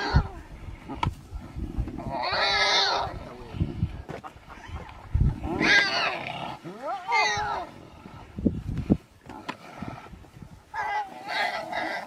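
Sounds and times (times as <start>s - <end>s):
pig squealing: 0.0s - 0.3s, 2.0s - 3.3s, 5.4s - 7.7s, 10.7s - 12.0s
low growling: 0.0s - 3.9s.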